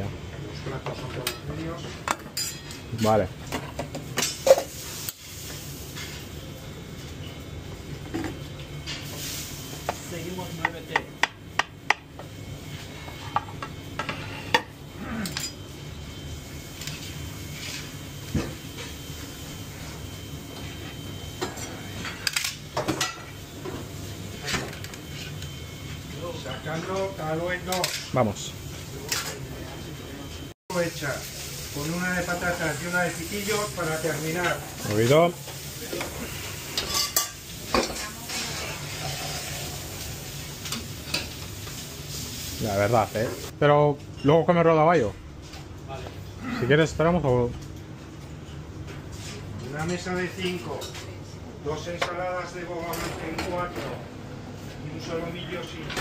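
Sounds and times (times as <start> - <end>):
metal utensils and plates clinking: 1.2 - 3.2, 36.8 - 39.5
food sizzling in hot oil: 4.2 - 6.9, 8.8 - 11.2, 30.7 - 43.6
low kitchen rumble: 28.4 - 42.6.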